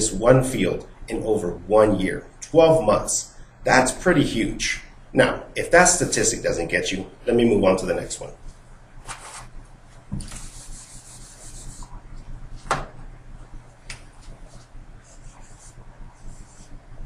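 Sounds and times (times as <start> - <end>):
eraser wiping whiteboard: 9.0 - 12.6, 14.2 - 17.0.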